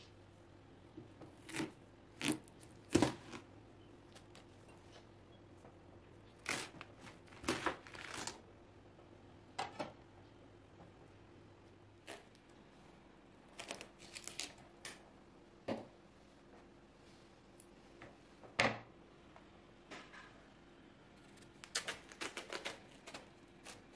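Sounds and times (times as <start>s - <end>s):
knife cutting watermelon crunches: 1.4s - 3.5s.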